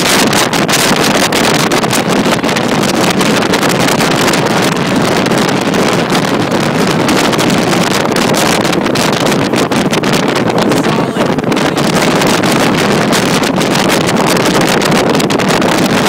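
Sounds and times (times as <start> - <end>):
outboard motor running: 0.0 - 16.0
water rushing off hull: 0.0 - 16.0
wind buffeting microphone: 0.0 - 16.0.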